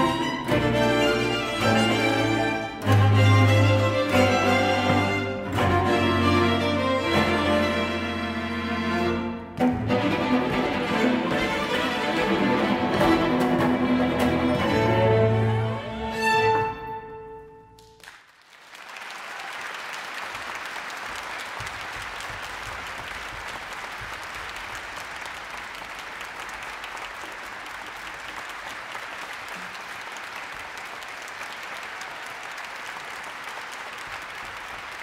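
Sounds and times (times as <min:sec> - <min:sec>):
cello and string orchestra: 0:00.0 - 0:17.6
audience applause: 0:17.8 - 0:35.0.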